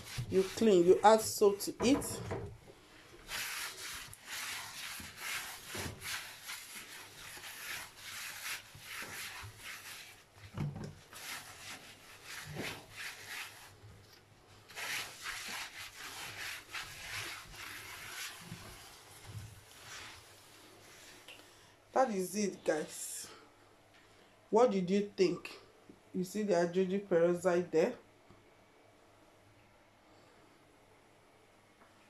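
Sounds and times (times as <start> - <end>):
cloth scrubbing a surface: 0.0 - 21.3.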